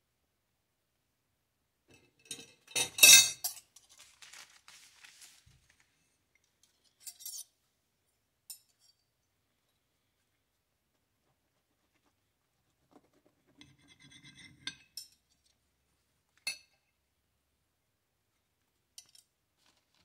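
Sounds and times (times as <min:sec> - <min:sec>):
metal cutlery clattering: 0:01.9 - 0:04.0, 0:06.8 - 0:07.5
paper wrapper crinkling: 0:03.8 - 0:06.1, 0:19.6 - 0:20.0.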